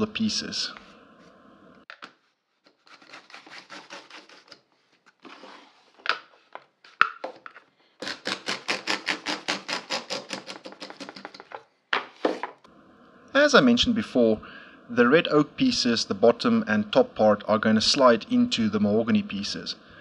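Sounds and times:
router plane scraping wood: 0:02.7 - 0:04.6, 0:08.0 - 0:11.5.

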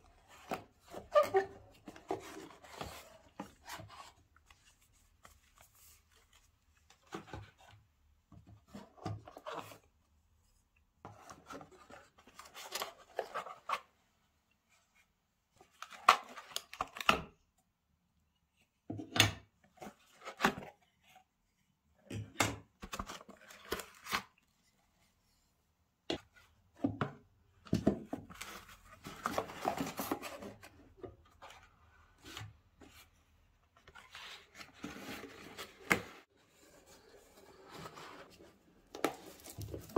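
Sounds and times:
packaging rustling and scraping: 0:33.9 - 0:39.9.

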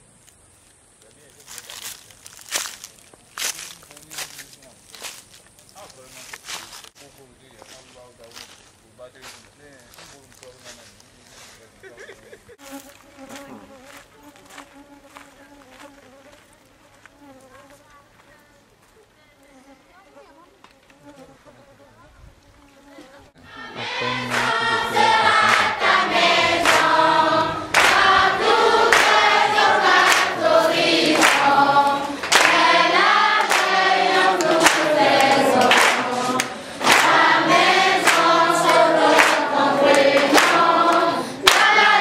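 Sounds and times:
group of voices singing: 0:23.4 - 0:42.0
steady clapping beat: 0:23.8 - 0:42.0.

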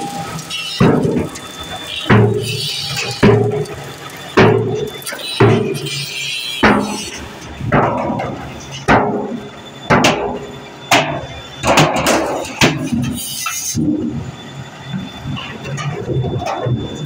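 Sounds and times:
hammer striking steel drums: 0:04.4 - 0:13.1.

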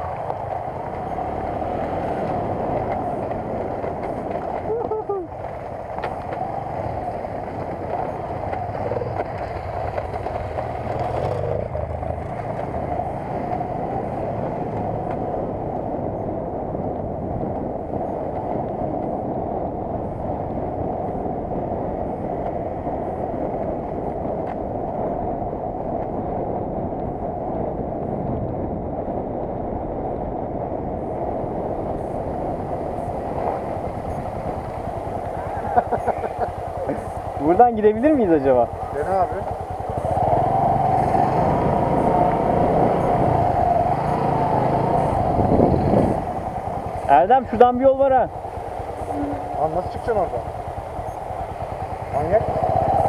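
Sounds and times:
motorcycle engine running: 0:00.0 - 0:53.0
wind on microphone: 0:00.0 - 0:53.0.

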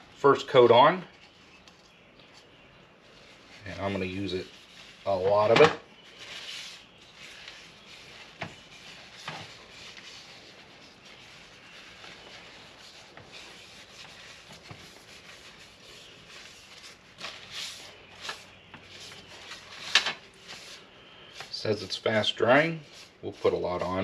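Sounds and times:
cloth rag rubbing wood: 0:03.0 - 0:24.0.

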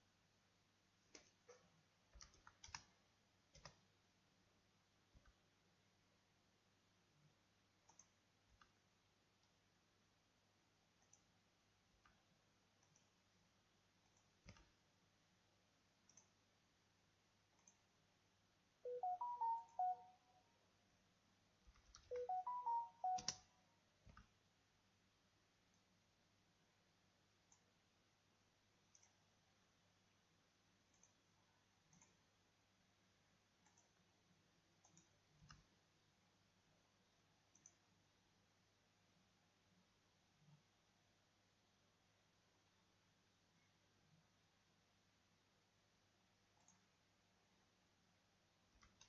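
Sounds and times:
faint computer mouse clicks: 0:01.1 - 0:02.9, 0:03.5 - 0:03.8, 0:07.8 - 0:08.8, 0:14.0 - 0:14.8, 0:16.0 - 0:16.4, 0:28.9 - 0:29.2, 0:30.9 - 0:31.2, 0:33.6 - 0:34.0, 0:34.8 - 0:35.7, 0:37.5 - 0:37.9, 0:46.6 - 0:46.9, 0:48.8 - 0:49.0
computer mouse clicks: 0:01.1 - 0:03.9, 0:07.8 - 0:08.8, 0:10.9 - 0:11.4, 0:12.0 - 0:13.2, 0:14.0 - 0:14.8, 0:16.0 - 0:16.4, 0:17.5 - 0:17.9, 0:21.6 - 0:24.4, 0:27.4 - 0:27.7, 0:28.8 - 0:29.3, 0:30.8 - 0:32.3, 0:33.6 - 0:34.1, 0:34.8 - 0:35.8, 0:37.5 - 0:37.9, 0:46.5 - 0:46.9, 0:48.7 - 0:49.0
electronic tone: 0:18.9 - 0:20.5, 0:22.1 - 0:23.4.

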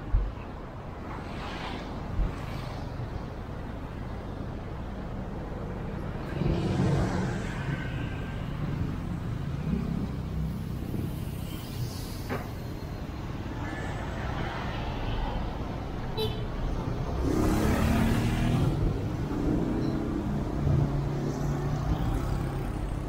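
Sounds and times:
traffic rumble: 0:00.0 - 0:23.0
loud vehicle passing: 0:17.1 - 0:23.0.

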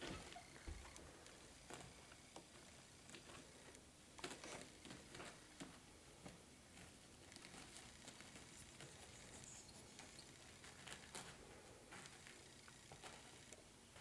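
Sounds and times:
puppies scuffing on blanket: 0:04.2 - 0:13.3.

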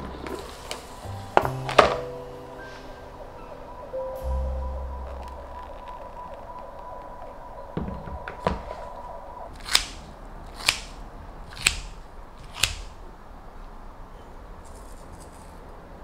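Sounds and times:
sharp clicks: 0:09.6 - 0:13.0.

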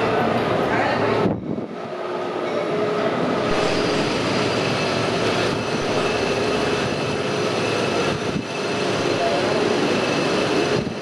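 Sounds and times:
metro train rumble: 0:00.0 - 0:11.0
held whining tones: 0:03.4 - 0:11.0.

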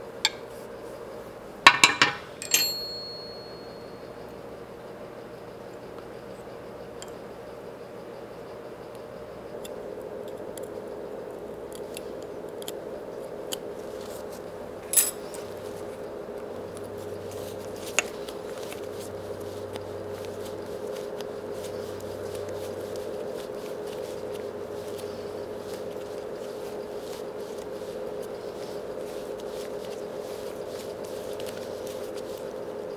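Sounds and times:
steady hum: 0:00.0 - 0:32.9
hand tools clicking on metal: 0:00.3 - 0:00.5, 0:01.7 - 0:03.6, 0:14.9 - 0:15.4
metal clink: 0:01.7 - 0:03.9, 0:14.9 - 0:15.3.

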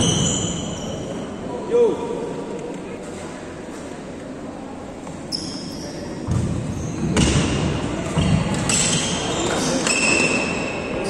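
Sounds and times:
shoes squeaking on floor: 0:00.0 - 0:01.2, 0:05.1 - 0:07.4, 0:08.1 - 0:11.0.

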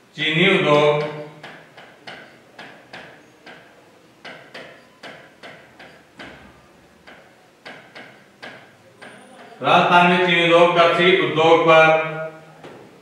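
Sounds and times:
marker pen tapping on board: 0:01.0 - 0:06.4, 0:07.0 - 0:09.2.

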